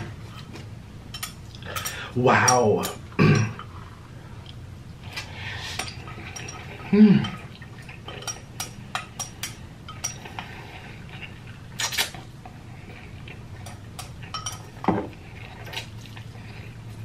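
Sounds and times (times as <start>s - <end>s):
person humming: 6.9s - 7.4s.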